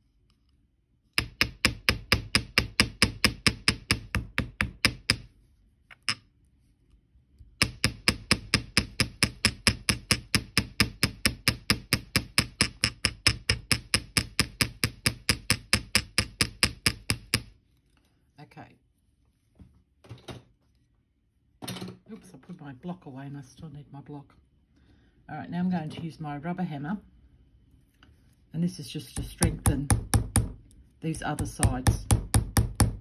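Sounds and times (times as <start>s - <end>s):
small hammer tapping metal: 1.1s - 5.3s, 7.6s - 17.5s.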